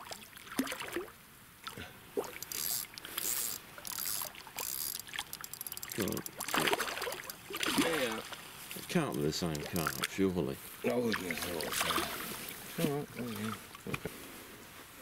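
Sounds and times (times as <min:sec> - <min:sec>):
fish splashing at surface: 0:00.0 - 0:08.4, 0:09.0 - 0:10.2, 0:11.0 - 0:12.6.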